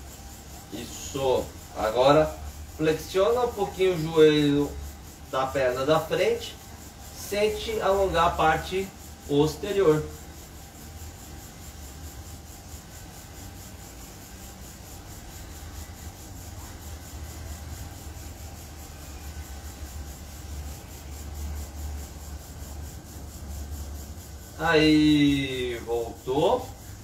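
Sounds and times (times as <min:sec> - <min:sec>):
faint hiss: 0:00.0 - 0:27.0.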